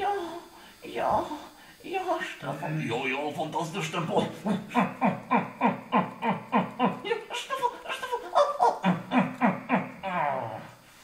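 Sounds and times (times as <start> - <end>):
person giving rhythmic cries: 4.1 - 10.6.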